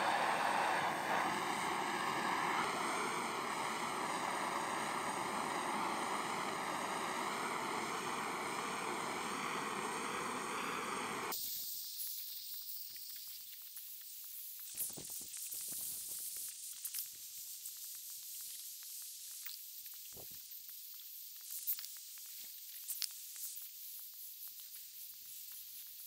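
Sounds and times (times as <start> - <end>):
torch flame hissing: 0.0 - 11.6.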